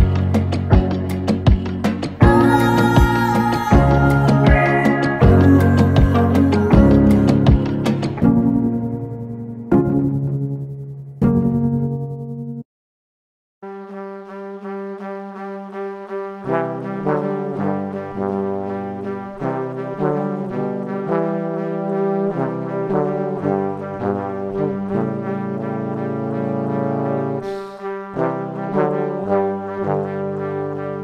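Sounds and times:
brass quartet playing: 2.2s - 8.2s, 13.9s - 31.0s.

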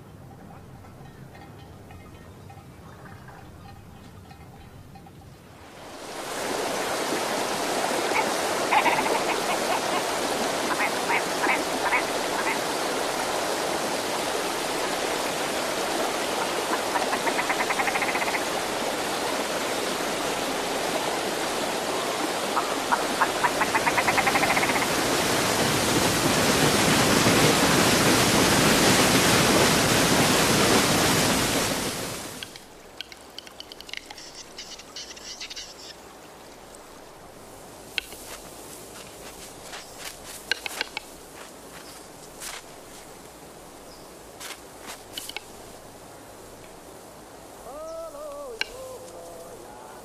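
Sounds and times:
river rapids rushing: 5.6s - 35.4s.

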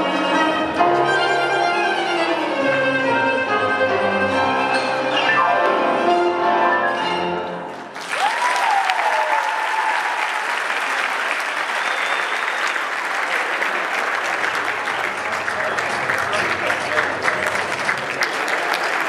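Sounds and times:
tango music with violins and piano: 0.0s - 7.9s
audience applause: 7.7s - 19.0s
person cheering: 8.1s - 10.4s.

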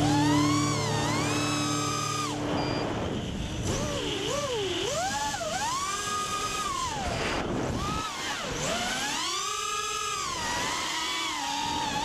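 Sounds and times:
drone motors whining: 0.0s - 12.0s.

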